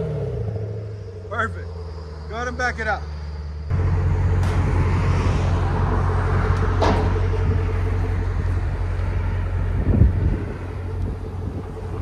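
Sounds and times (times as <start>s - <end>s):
deep exhaust rumble: 0.0s - 12.0s.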